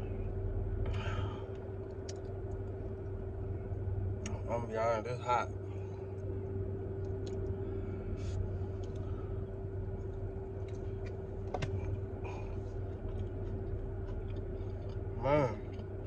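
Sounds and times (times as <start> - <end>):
car air conditioning humming: 0.0 - 16.0.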